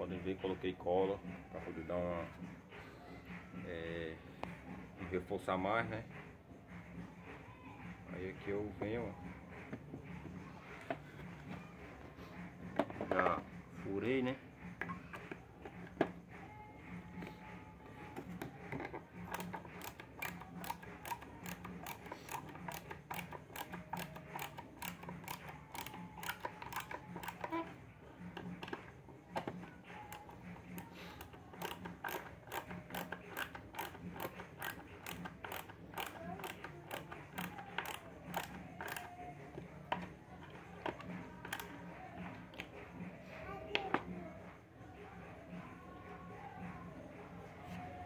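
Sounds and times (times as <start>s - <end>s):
screwdriver clicking: 19.2s - 27.6s, 30.1s - 39.1s, 40.8s - 41.7s.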